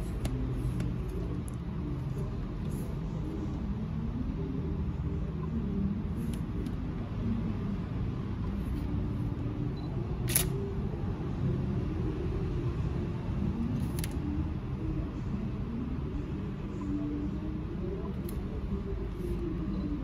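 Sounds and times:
camera shutter clicks: 10.3 - 10.5.

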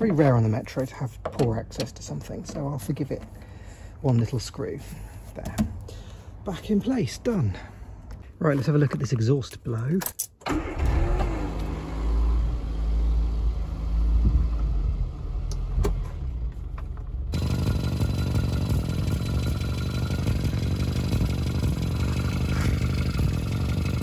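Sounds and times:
car engine idling: 16.5 - 24.0
exhaust gas hissing: 17.4 - 24.0.

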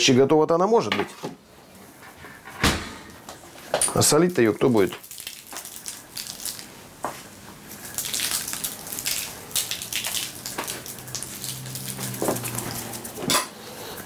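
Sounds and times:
salt grains pattering: 4.0 - 6.8, 7.7 - 13.2.

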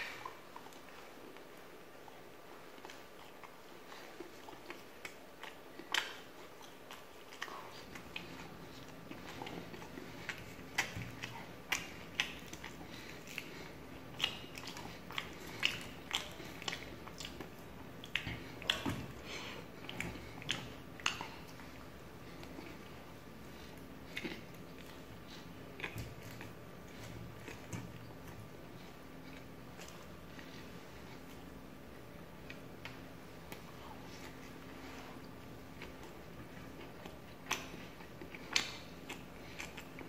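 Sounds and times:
person biting and chewing: 4.4 - 22.8.

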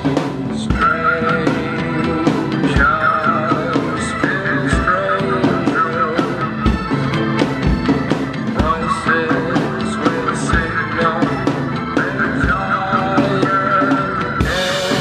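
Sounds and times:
rock song with guitar: 0.0 - 15.0
snare and cymbal hits: 14.4 - 15.0.

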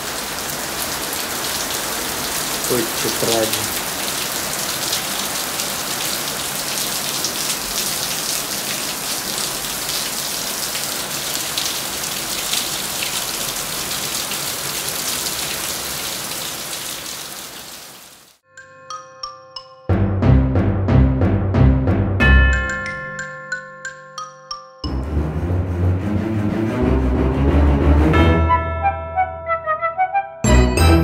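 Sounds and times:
heavy rain pouring: 0.0 - 18.4.

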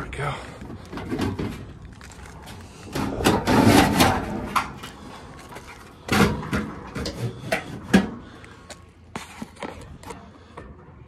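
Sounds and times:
sheet metal scraping: 2.8 - 4.7.

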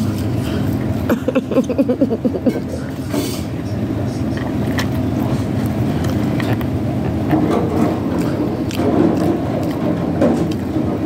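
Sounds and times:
low background rumble: 0.0 - 11.0
person chewing fries: 4.4 - 11.0.

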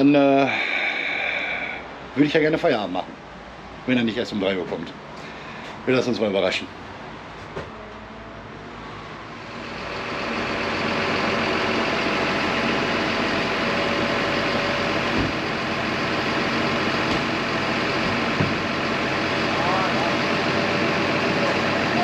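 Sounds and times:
truck engine running: 5.2 - 22.0.

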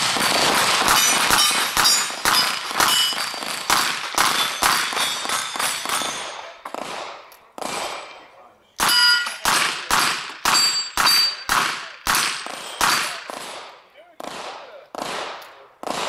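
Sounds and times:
steel plate clanging: 0.3 - 6.5, 8.8 - 9.7, 10.5 - 11.5.

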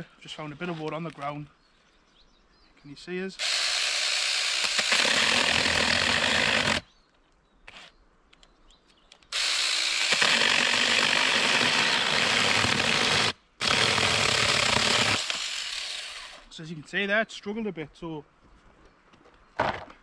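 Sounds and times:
cordless chainsaw cutting branch: 3.4 - 6.8, 9.3 - 16.4.

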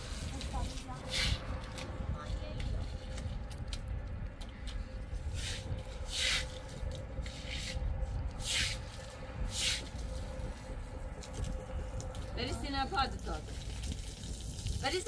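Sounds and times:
water running from hose: 0.0 - 1.8, 12.1 - 15.0
broom swishing over wet concrete: 0.0 - 3.0, 5.2 - 10.7.

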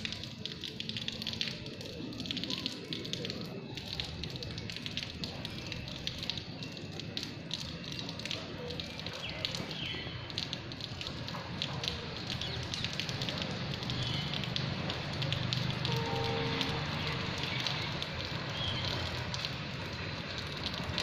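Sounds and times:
raindrops ticking on surfaces: 0.0 - 21.0
steady rain falling: 0.0 - 21.0.

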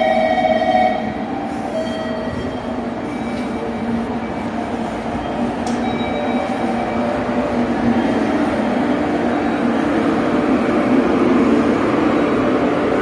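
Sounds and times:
electric train humming: 0.0 - 13.0.

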